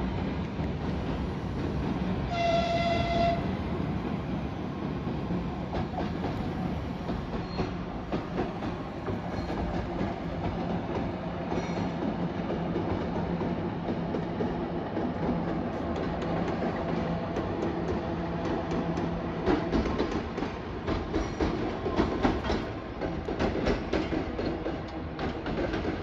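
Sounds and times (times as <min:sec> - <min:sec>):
locomotive horn blast: 0:02.3 - 0:03.5.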